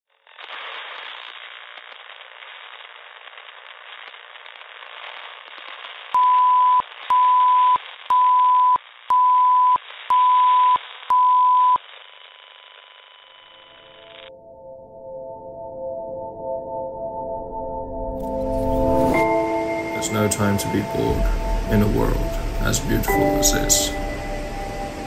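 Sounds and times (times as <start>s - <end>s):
radio static crackle: 0.1s - 14.3s, 18.3s - 25.0s
loud steady beeps: 6.2s - 11.8s.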